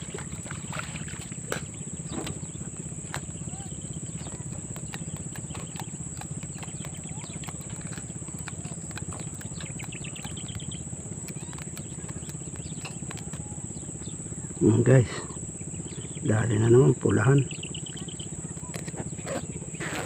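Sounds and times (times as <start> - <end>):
low throbbing hum: 0.0 - 19.8
insects droning: 0.0 - 20.0
scattered clicks: 2.1 - 14.1.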